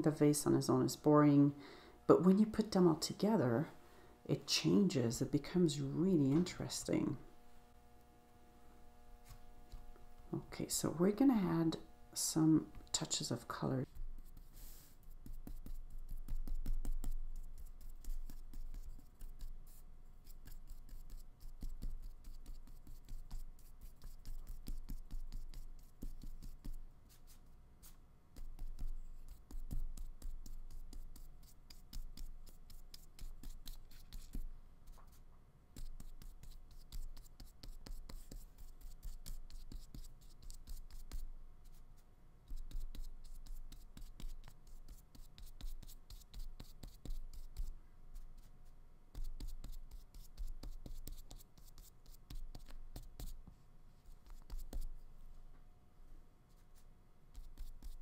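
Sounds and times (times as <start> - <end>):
paintbrush scratching on paper: 13.0 - 53.4, 54.0 - 55.1, 56.5 - 58.0.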